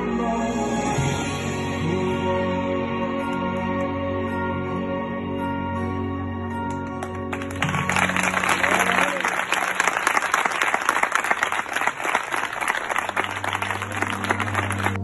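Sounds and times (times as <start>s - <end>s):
crowd applauding: 6.7s - 15.0s.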